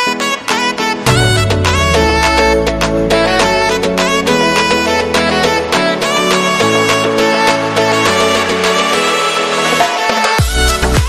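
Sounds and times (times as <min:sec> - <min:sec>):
held chords: 0:00.9 - 0:07.9
kick drum and bass beat: 0:01.1 - 0:04.4, 0:10.4 - 0:11.0.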